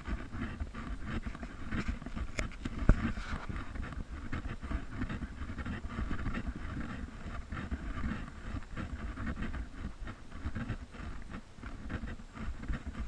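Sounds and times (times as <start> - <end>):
wind rumbling on microphone: 0.0 - 13.0
camera handling noise: 1.2 - 3.7.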